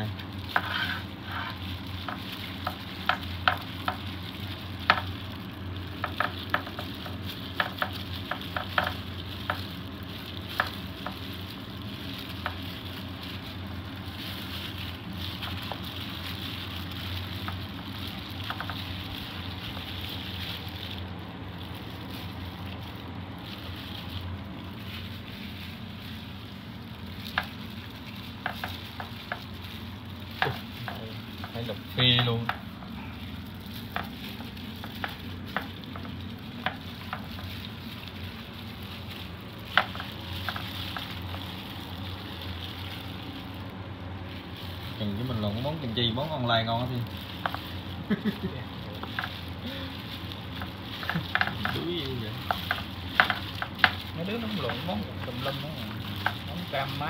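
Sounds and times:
low steady hum: 0.0 - 57.0
plastic gloves crinkling: 0.0 - 57.0.

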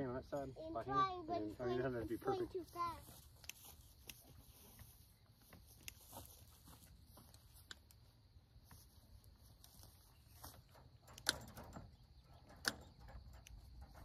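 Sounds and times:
metal fence panel clicks: 11.1 - 14.0.

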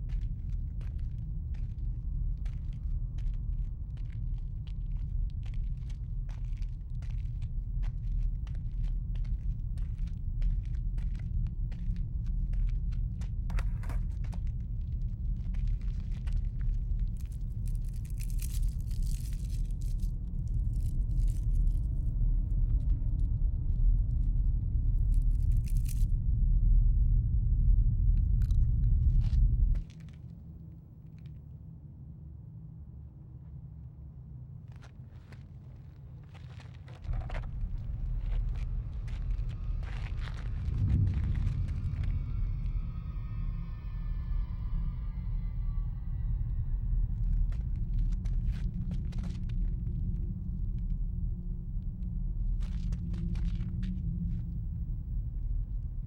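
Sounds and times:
low rumbling drone: 14.6 - 34.5, 37.0 - 56.0
crackling rustle: 15.4 - 22.0, 25.1 - 26.1, 34.7 - 42.2, 52.4 - 54.6.

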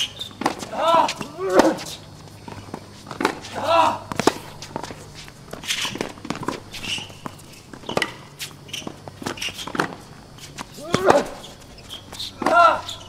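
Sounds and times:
shoes scuffing on court: 0.0 - 13.0
tennis ball bouncing: 0.0 - 13.0
tennis racket striking ball: 0.4 - 2.0, 2.6 - 8.2, 10.6 - 11.4, 12.2 - 13.0.

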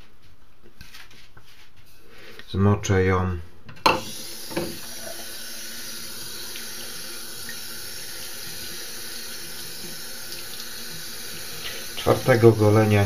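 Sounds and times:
tap water running into sink: 3.9 - 13.0.

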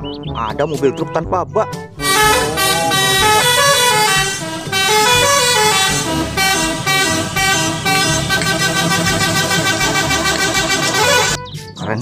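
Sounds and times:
truck engine rumble: 2.0 - 11.5
truck horns sounding: 2.0 - 11.5.

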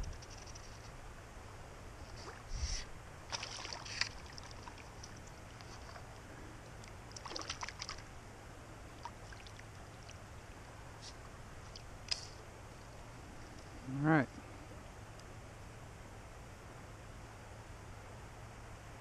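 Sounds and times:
fish splashing at water surface: 3.3 - 5.2, 7.1 - 8.1.

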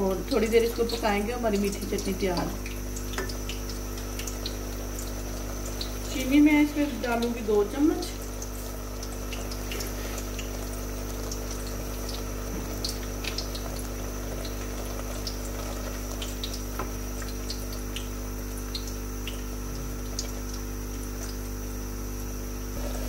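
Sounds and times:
liquid boiling with small pops: 0.1 - 22.9.

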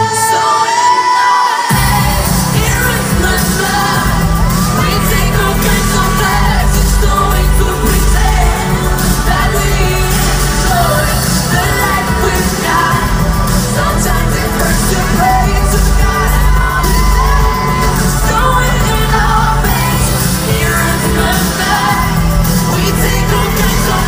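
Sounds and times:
live pop music with heavy bass: 0.0 - 24.0
person singing: 0.0 - 24.0.

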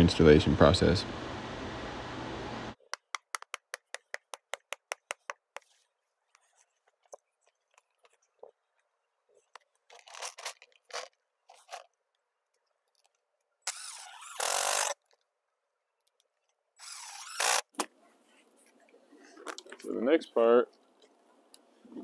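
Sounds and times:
cordless drill driving screws: 13.7 - 15.0, 16.8 - 17.6.

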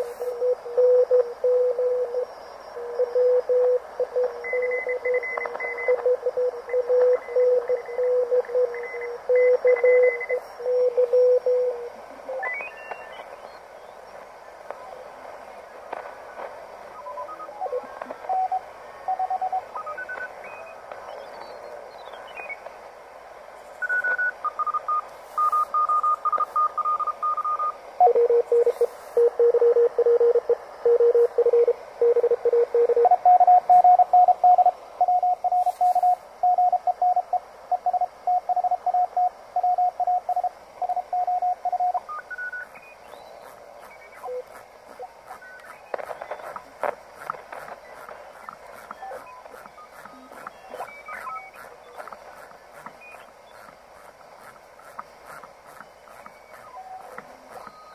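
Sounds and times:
morse code beeps: 0.0 - 2.3, 3.0 - 13.5, 16.9 - 21.4, 23.8 - 57.9
radio band hiss: 0.0 - 57.9.

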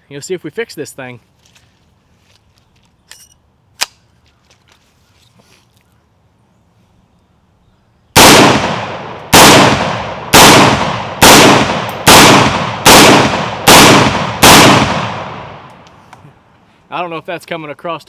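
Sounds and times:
pistol shots with echo: 8.2 - 15.7.

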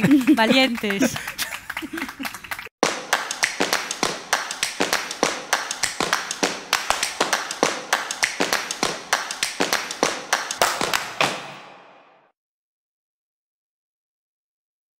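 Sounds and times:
people clapping: 0.0 - 11.7.

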